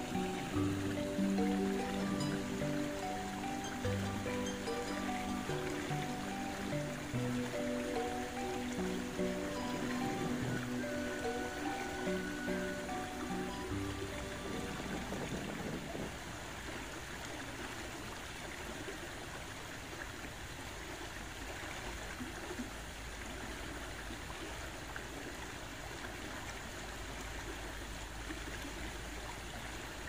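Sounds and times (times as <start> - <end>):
river rushing past rocks: 0.0 - 22.1.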